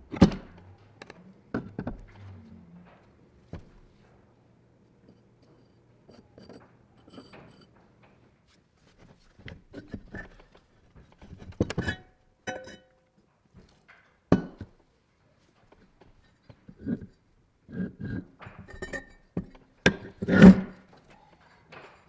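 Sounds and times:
metal-on-metal scraping: 0:06.1 - 0:07.8.

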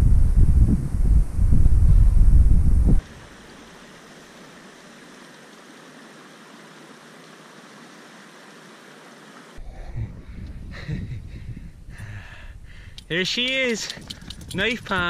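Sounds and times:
water trickling among rocks: 0:12.9 - 0:15.0.

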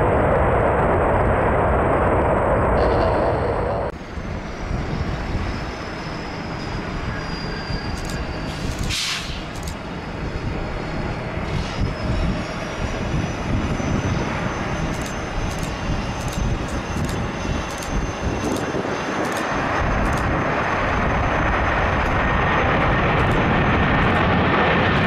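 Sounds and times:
high engine whine: 0:00.0 - 0:25.0
jet engines rumbling on landing: 0:00.0 - 0:25.0.

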